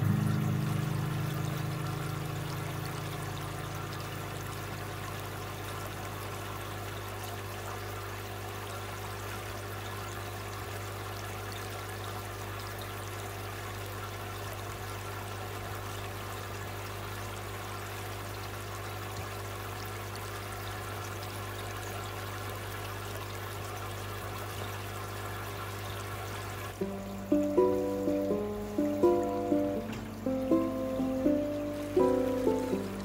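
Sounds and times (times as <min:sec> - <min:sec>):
low steady hum: 0:00.0 - 0:06.9
water trickling into tank: 0:00.0 - 0:33.0.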